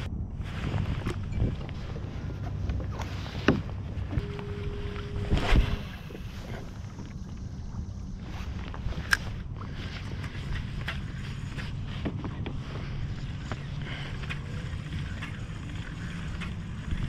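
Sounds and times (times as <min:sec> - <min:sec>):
low rumble: 0:00.0 - 0:17.0
water lapping against kayak hull: 0:00.4 - 0:17.0.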